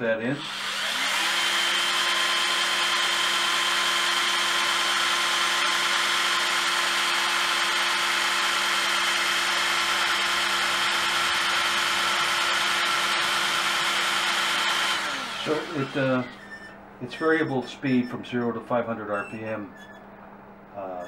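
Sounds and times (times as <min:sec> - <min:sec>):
drain auger whining: 0:00.4 - 0:16.7.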